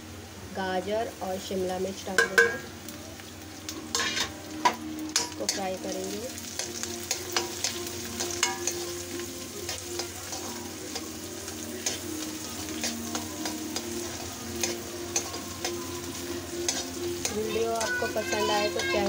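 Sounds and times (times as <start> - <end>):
vegetables sizzling in oil: 0.0 - 19.0
metal ladle scraping a pan: 3.9 - 5.7, 6.4 - 19.0.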